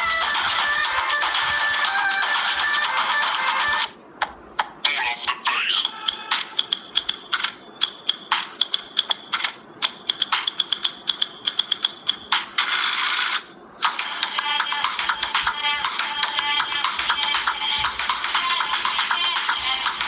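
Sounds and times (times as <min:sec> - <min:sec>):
dance music through a speaker: 0:00.0 - 0:03.9, 0:05.8 - 0:12.9, 0:13.8 - 0:20.0
sharp percussive clicks: 0:05.8 - 0:12.6.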